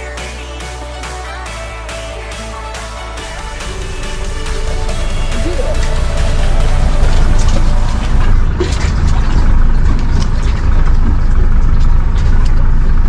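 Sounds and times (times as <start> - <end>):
low rumble: 3.2 - 13.0.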